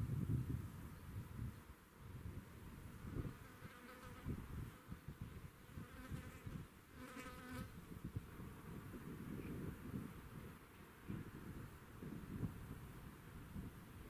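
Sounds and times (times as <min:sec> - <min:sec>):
wind rumble on microphone: 0:00.0 - 0:14.0
insect buzzing: 0:03.1 - 0:09.0.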